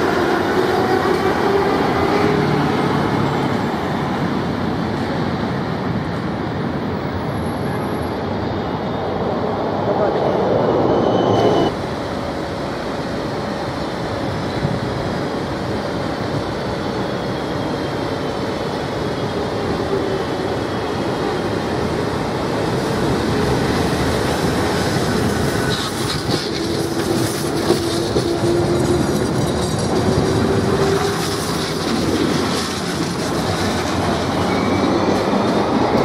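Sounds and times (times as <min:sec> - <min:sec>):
city traffic noise: 0:00.0 - 0:36.0
tram passing on rails: 0:00.0 - 0:36.0
wheels clacking over rail joints: 0:23.8 - 0:36.0.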